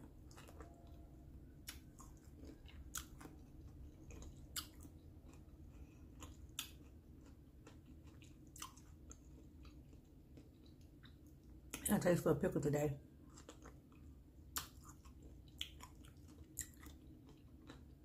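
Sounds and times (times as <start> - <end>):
person chewing with wet crunches: 0.0 - 11.9, 13.1 - 18.0
low steady hum: 0.0 - 18.0.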